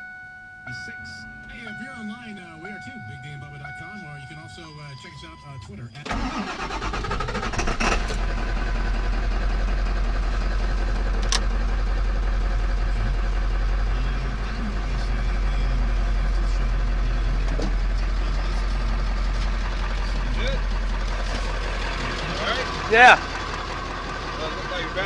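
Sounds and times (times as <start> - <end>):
diesel engine idling roughly: 6.0 - 25.0.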